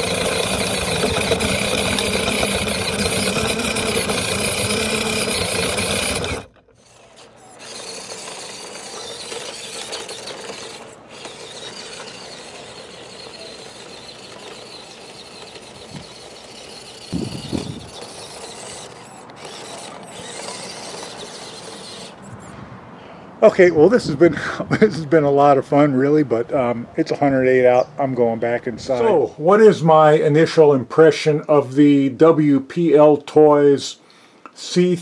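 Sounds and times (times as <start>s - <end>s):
toy car motor whining and rattling: 0.0s - 22.6s.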